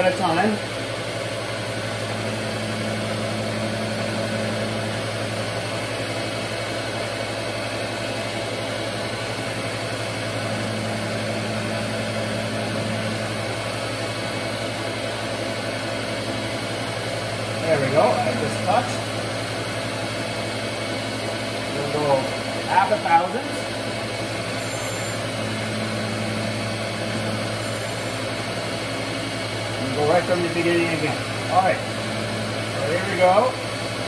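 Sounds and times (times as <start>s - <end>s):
surface grinder running: 1.3s - 34.0s
higher hum: 1.8s - 5.8s, 10.0s - 14.9s, 24.1s - 33.8s.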